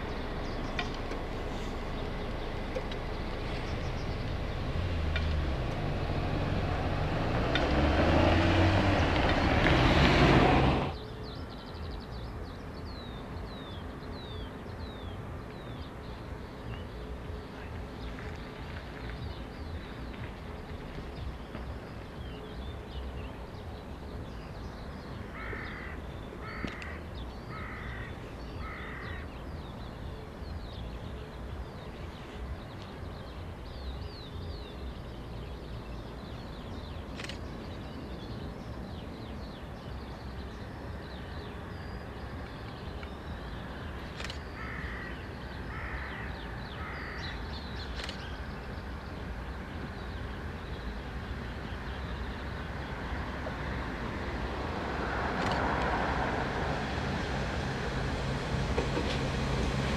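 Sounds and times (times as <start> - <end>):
small birds chirping: 0.0 - 53.7
crow cawing: 25.4 - 29.2, 44.6 - 47.3.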